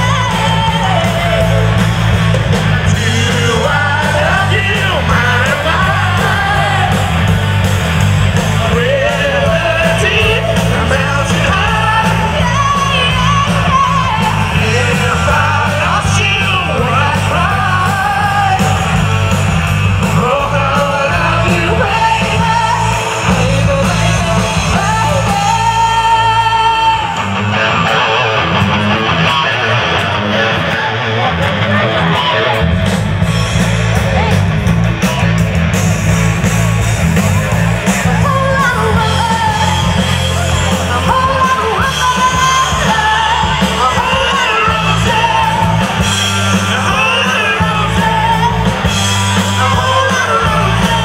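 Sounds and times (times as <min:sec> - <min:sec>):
woman singing: 0:00.0 - 0:01.6, 0:08.8 - 0:18.6, 0:20.2 - 0:27.1, 0:38.1 - 0:40.1, 0:40.9 - 0:46.0
bass guitar: 0:00.0 - 0:51.0
drums: 0:00.0 - 0:51.0
electric guitar: 0:00.0 - 0:51.0.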